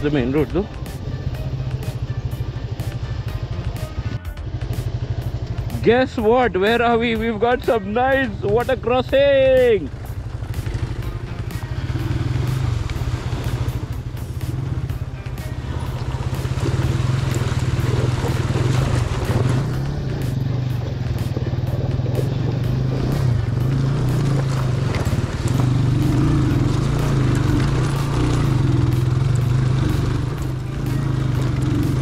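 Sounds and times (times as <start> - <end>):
motorcycle engine running at low revs: 0.0 - 32.0
water splashing around wheels: 8.3 - 32.0.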